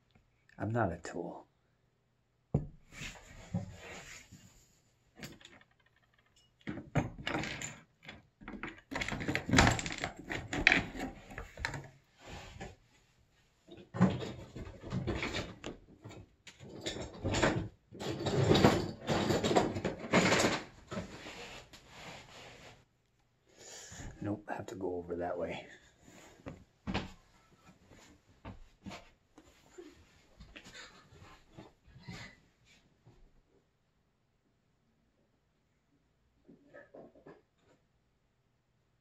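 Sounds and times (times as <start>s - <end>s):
objects knocked and clattering: 5.2s - 12.8s, 13.7s - 21.2s.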